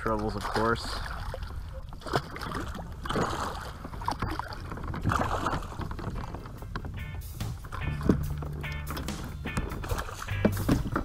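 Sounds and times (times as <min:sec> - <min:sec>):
fish thrashing and splashing: 0:00.1 - 0:06.8, 0:09.1 - 0:11.0.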